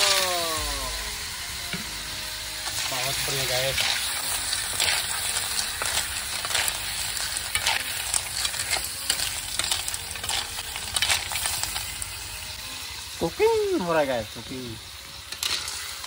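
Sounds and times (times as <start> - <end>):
snails sizzling in a pan: 0.0 - 16.0
shells clicking and scraping on pan: 2.6 - 12.2, 15.1 - 16.0.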